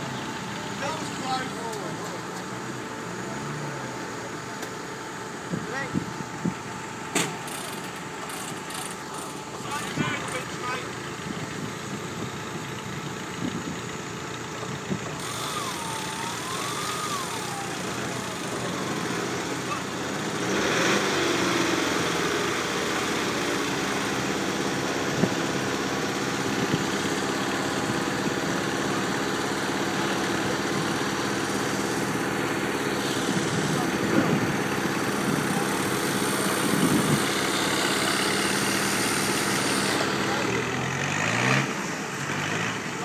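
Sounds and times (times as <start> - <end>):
vehicle engine revving in mud: 15.2 - 43.0.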